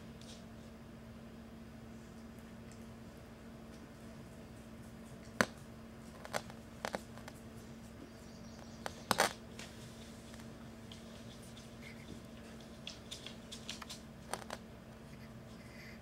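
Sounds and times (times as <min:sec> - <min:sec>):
faint low hum: 0:00.0 - 0:16.0
dog claws on hardwood floor: 0:08.8 - 0:14.6.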